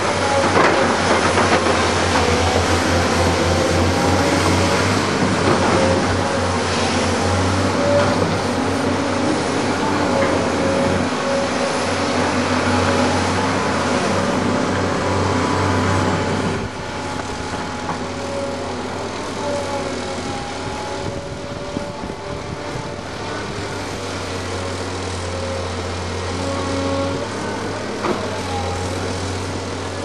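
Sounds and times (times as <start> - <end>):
engine whine: 0.0 - 30.0
excavator diesel engines droning: 0.0 - 30.0.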